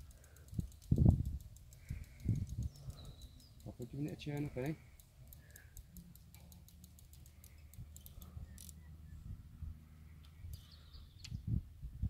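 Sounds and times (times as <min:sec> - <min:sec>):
quick ticks: 0:00.0 - 0:08.8
faint bird chirp: 0:01.8 - 0:04.7, 0:07.2 - 0:11.6
low wind rumble: 0:07.7 - 0:12.0.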